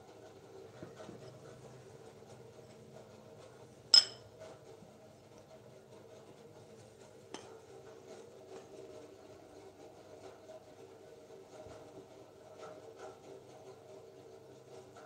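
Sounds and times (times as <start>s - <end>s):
low steady hum: 3.8s - 4.3s
crockery clinking: 3.9s - 4.3s.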